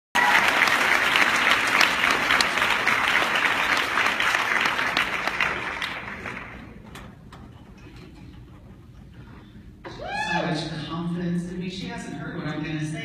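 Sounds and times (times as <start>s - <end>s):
audience applauding: 0.2s - 6.8s.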